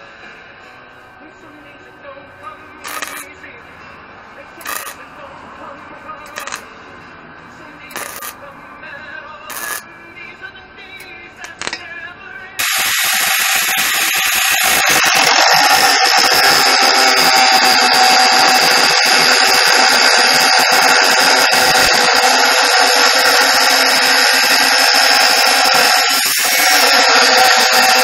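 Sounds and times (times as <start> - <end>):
angle grinder cutting metal: 2.8 - 3.4, 4.6 - 5.1, 6.3 - 6.7, 7.9 - 8.5, 9.5 - 9.9, 11.4 - 11.9, 12.6 - 28.0.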